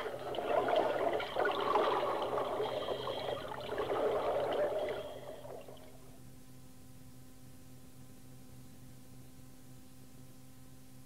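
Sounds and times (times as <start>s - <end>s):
trickling water: 0.0s - 6.2s
low hum: 0.0s - 9.4s
tape hiss: 0.0s - 10.4s.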